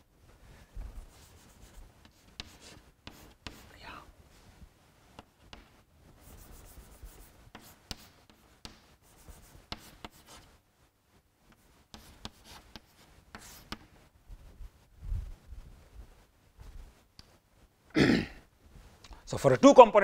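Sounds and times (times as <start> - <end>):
chalk tapping and scratching: 1.0 - 4.0, 5.1 - 10.6, 11.5 - 14.0, 16.6 - 17.4.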